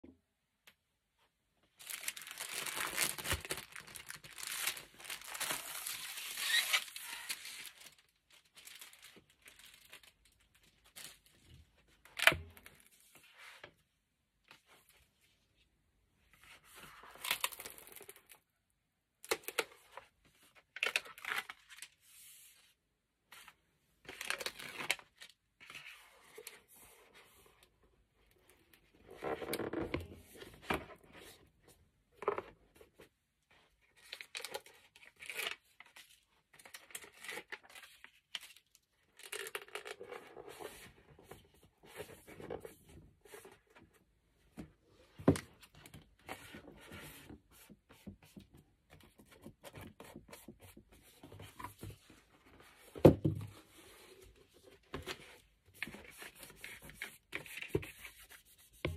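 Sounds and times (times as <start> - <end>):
card being folded: 1.8 - 10.1
paper rustling: 1.8 - 11.3.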